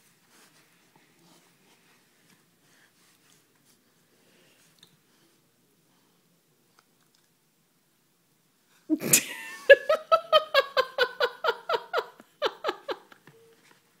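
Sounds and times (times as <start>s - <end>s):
person laughing high-pitched: 8.9s - 13.2s.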